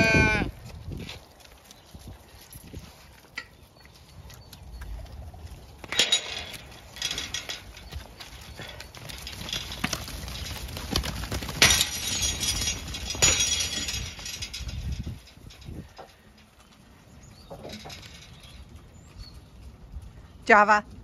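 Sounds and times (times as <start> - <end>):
sheep hooves knocking and clattering: 0.5 - 20.4.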